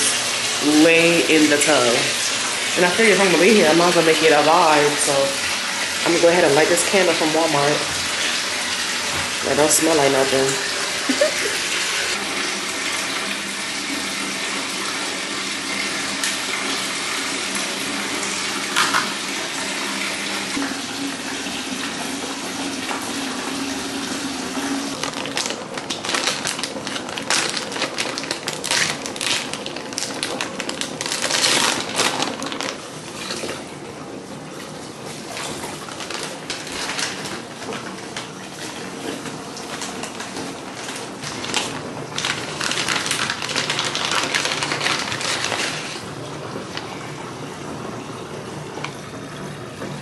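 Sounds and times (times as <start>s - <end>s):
bathtub tap running: 0.0s - 50.0s
plastic bag crackling: 24.9s - 33.6s, 35.3s - 38.3s, 39.7s - 47.0s.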